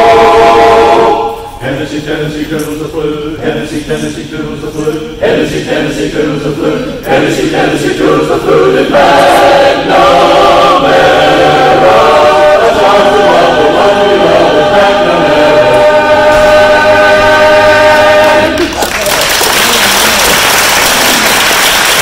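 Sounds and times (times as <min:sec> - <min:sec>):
men's chorus singing a cappella: 0:00.0 - 0:18.6
audience applause: 0:18.4 - 0:22.0.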